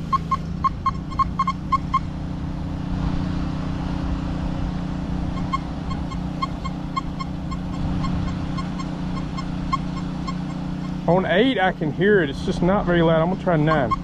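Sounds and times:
metal detector short faint beeps: 0.0 - 2.1, 5.3 - 11.2, 13.6 - 14.0
steady low hum: 0.0 - 14.0.

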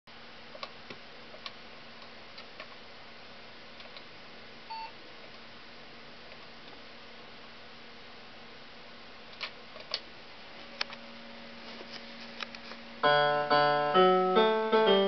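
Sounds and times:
computer fan hiss: 0.1 - 15.0
faint hum: 0.1 - 15.0.

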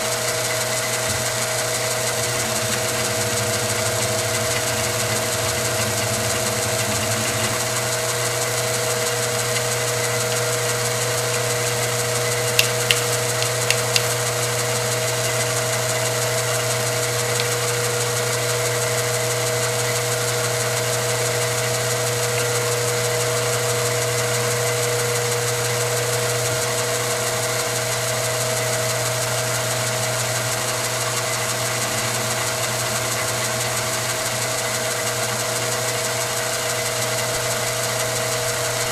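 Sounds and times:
milling machine cutting metal: 0.0 - 38.9
sharp ticks: 12.4 - 14.2.

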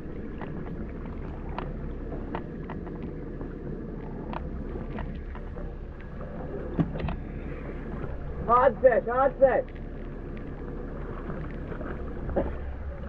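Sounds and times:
light clicks and taps: 1.5 - 3.6, 4.2 - 6.1.

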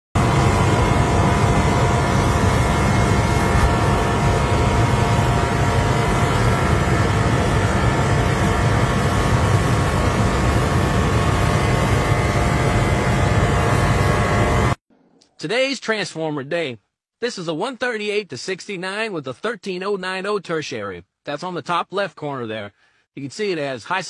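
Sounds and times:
power transformer humming: 0.2 - 14.8.

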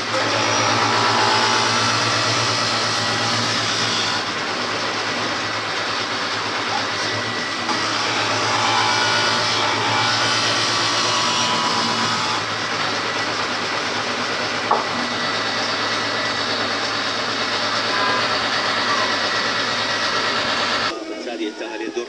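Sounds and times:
wooden board being cut: 0.0 - 20.9
woodworking machine motor hum: 0.0 - 20.9
short knock: 14.7 - 15.0.

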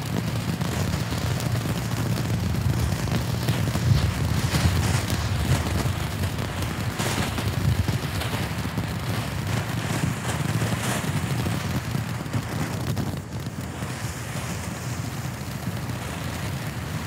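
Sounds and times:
firework crackling and fizzing: 0.0 - 17.0
small firework pops: 0.0 - 17.0.

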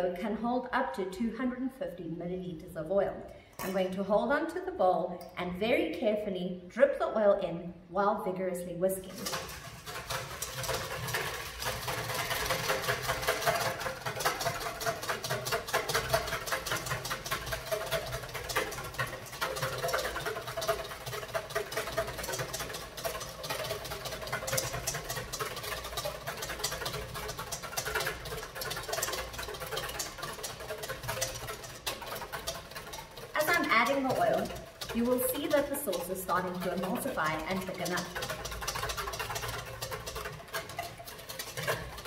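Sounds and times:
whisk clicking in metal bowl: 9.0 - 42.0.

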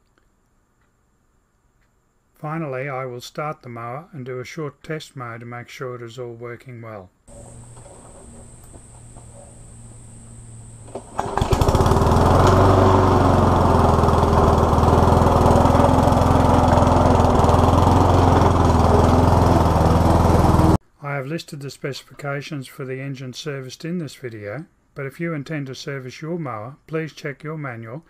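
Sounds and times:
faint steady hum: 7.2 - 11.2
lawnmower engine running: 7.3 - 20.8.

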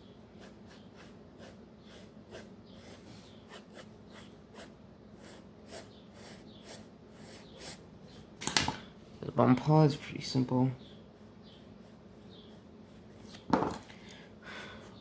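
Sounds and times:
pencil scratching on paper: 0.3 - 7.8.

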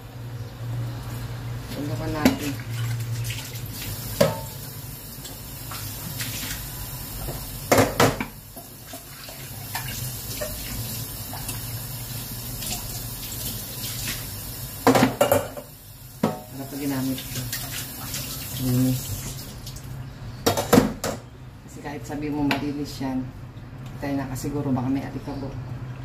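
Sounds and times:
cookware knocking against sink: 14.9 - 16.5.

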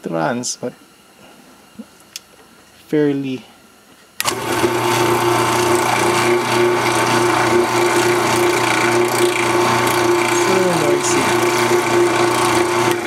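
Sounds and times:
electric motor humming with whine: 4.2 - 13.0.

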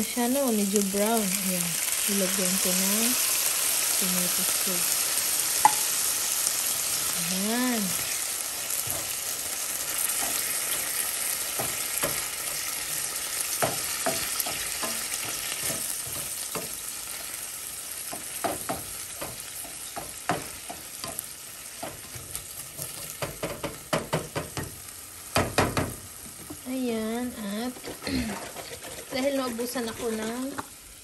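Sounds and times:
sauce sizzling in a frying pan: 0.0 - 31.0
spatula scraping a pan: 7.9 - 23.4, 27.6 - 30.8.

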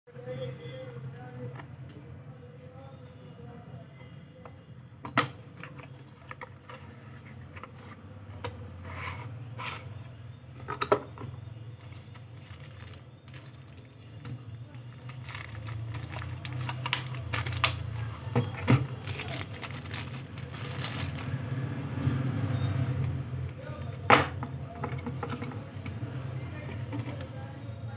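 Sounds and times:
plastic bags crinkling: 11.9 - 21.4.

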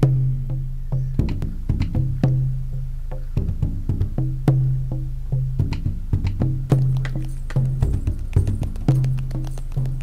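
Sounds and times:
plucked string notes: 0.0 - 10.0
clicking percussive beat: 1.2 - 2.4, 3.4 - 10.0.

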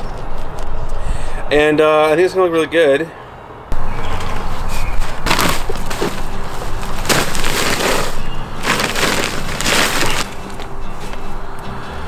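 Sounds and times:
wooden timber scraping on gravel: 4.3 - 11.3.

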